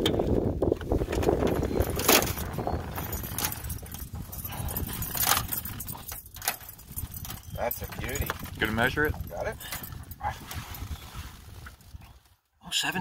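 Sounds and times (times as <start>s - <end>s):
fishing gear clicking and rattling: 0.0s - 11.0s
wind buffeting microphone: 0.0s - 12.3s.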